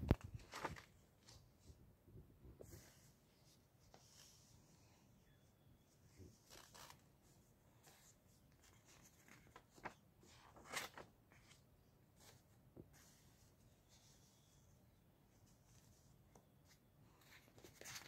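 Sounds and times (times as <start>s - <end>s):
page turning: 0.0s - 1.4s, 6.4s - 7.0s, 8.6s - 11.6s
paper rustling: 0.1s - 1.5s, 7.8s - 11.6s, 17.2s - 18.0s.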